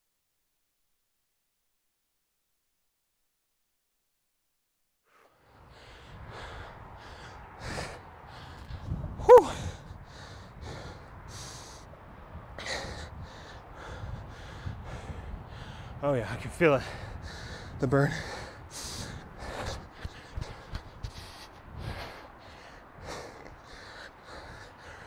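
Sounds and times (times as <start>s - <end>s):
man panting: 5.1s - 25.0s
man gasping grunt: 9.2s - 9.8s.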